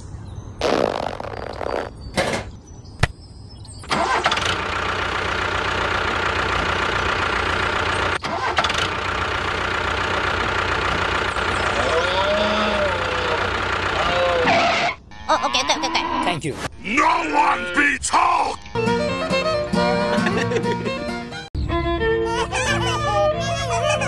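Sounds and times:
tractor engine starting and idling: 3.8 - 14.6.

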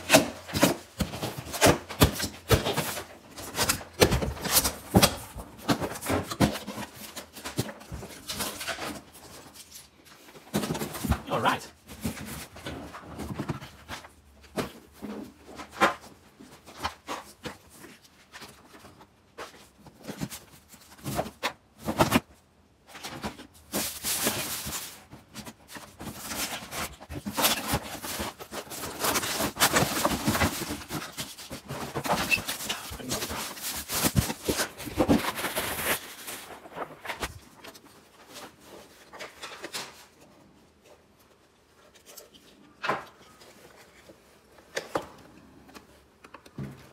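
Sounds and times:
plastic parts knocking in box: 0.0 - 9.1, 22.9 - 37.4.

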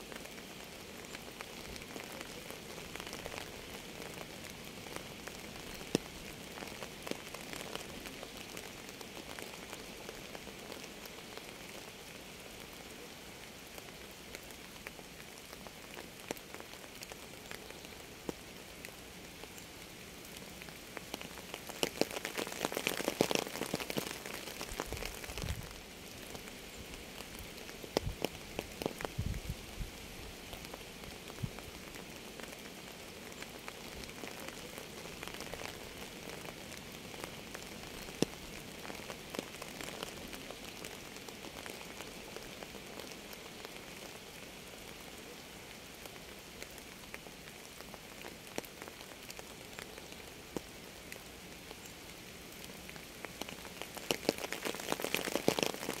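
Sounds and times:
rain pattering: 0.0 - 56.0
loud single raindrops: 20.3 - 29.5, 53.2 - 56.0.

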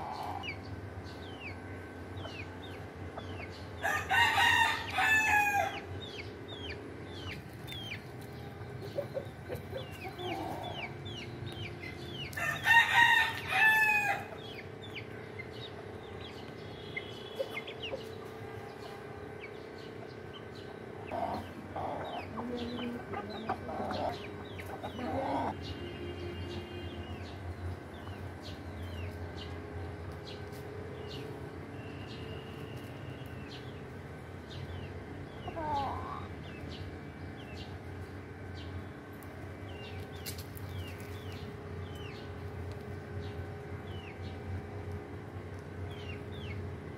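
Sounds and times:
chick peeping: 0.0 - 1.6, 2.2 - 3.9, 4.6 - 13.2, 14.3 - 25.8, 34.5 - 38.7
rooster crowing: 3.8 - 5.8, 12.4 - 14.3
hen clucking: 6.5 - 13.1, 20.0 - 25.6, 35.4 - 36.6.

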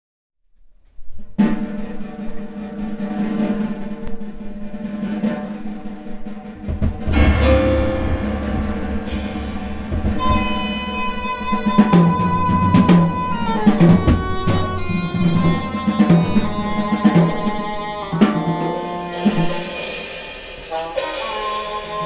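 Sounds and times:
drums and percussion: 1.4 - 22.0
high held tone: 7.1 - 17.7.

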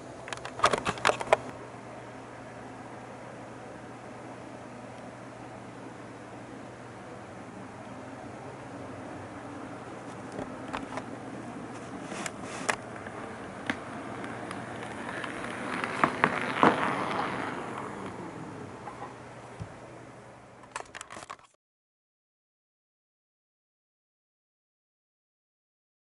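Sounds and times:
buzzing model train motor hum: 12.1 - 19.1
wheels clicking over rail joints: 14.2 - 19.2.

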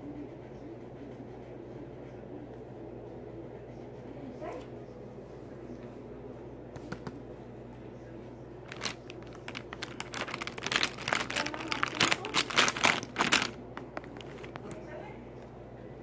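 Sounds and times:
low steady hum: 0.0 - 16.0
scratching and rustling on paper: 8.7 - 14.8.

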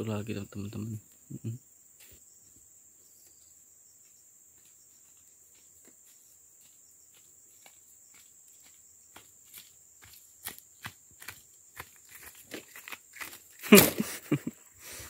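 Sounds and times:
high-pitched insect chorus: 0.0 - 15.0
footsteps crunching on dry fronds: 4.0 - 14.0.

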